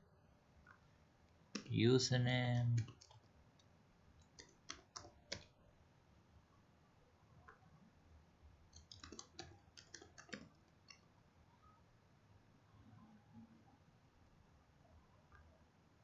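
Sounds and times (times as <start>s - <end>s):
computer keyboard typing: 1.6s - 1.8s, 2.6s - 3.3s, 4.2s - 5.6s, 8.7s - 11.0s.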